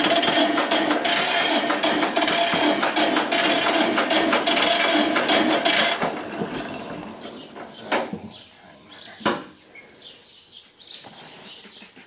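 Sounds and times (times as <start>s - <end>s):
electric starter cranking engine: 0.0s - 7.2s.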